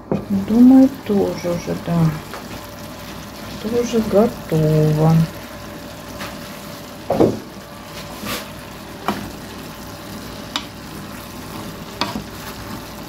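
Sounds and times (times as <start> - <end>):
faint sizzle: 0.0 - 13.0
wooden spoon scraping a pan: 7.8 - 9.4, 10.2 - 13.0.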